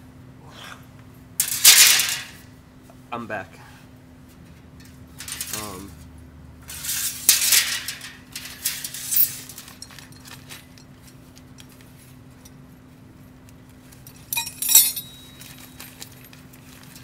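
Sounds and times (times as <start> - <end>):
steady low hum: 0.0 - 17.0
light clinks of hardware: 14.0 - 17.0.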